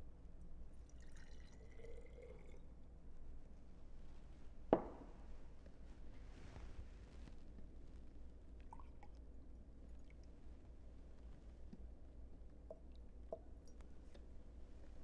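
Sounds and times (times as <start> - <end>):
liquid trickling into glass jar: 0.8 - 2.7
sharp knock: 4.8 - 5.1.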